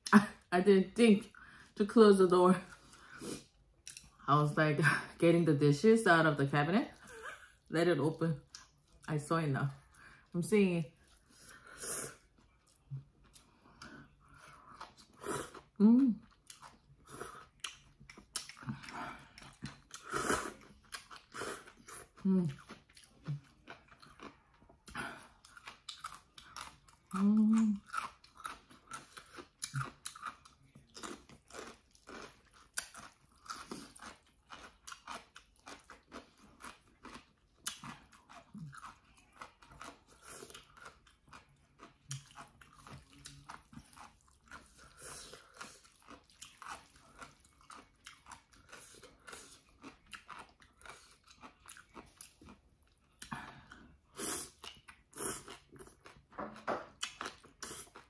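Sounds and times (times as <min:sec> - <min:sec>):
chewing and lip smacks: 0:12.2 - 0:27.2, 0:27.8 - 0:58.0.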